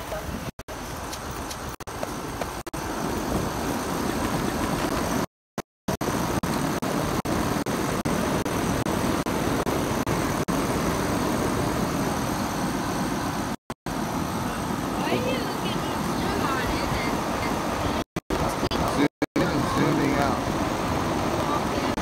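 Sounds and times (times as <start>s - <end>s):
air conditioner units running: 6.0s - 22.0s.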